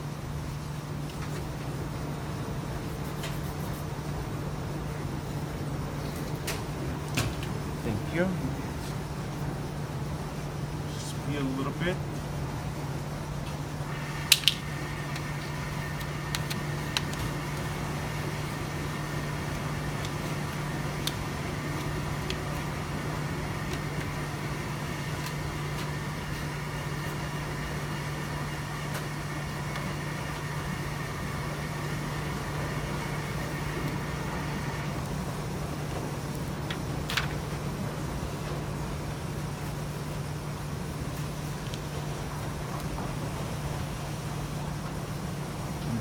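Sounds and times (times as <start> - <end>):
laundromat machinery hum: 0.0 - 46.0
sharp clicks: 14.1 - 15.3.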